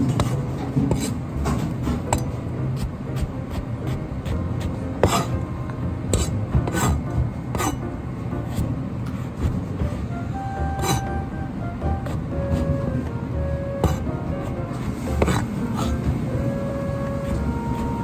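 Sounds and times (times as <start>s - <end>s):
cleaver chopping on cutting board: 0.0s - 5.4s, 6.1s - 7.8s, 13.8s - 14.6s, 15.2s - 16.0s
steady low rumble: 2.1s - 18.0s.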